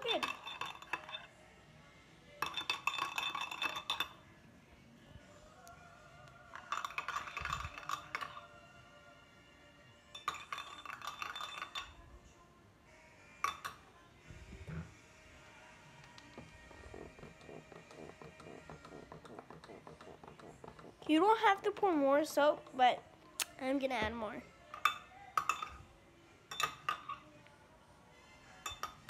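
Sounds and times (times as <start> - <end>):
spoon clinking in ceramic bowl: 0.0 - 1.3, 2.4 - 4.2, 6.6 - 8.5, 10.1 - 12.0, 13.4 - 13.9, 24.7 - 25.8, 26.5 - 27.3, 28.6 - 29.0.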